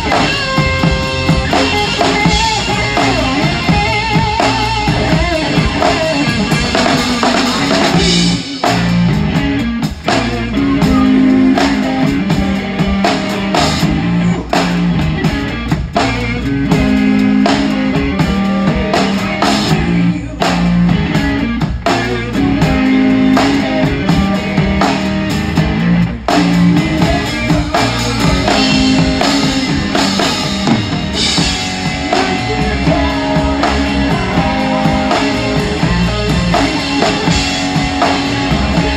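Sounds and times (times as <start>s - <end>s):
drum kit and cymbals: 0.0s - 38.9s
guitar: 0.0s - 38.9s.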